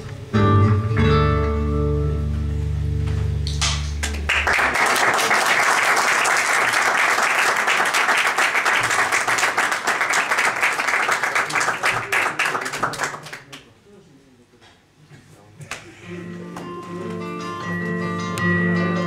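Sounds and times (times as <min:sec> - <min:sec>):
audience applause: 0:04.0 - 0:13.6.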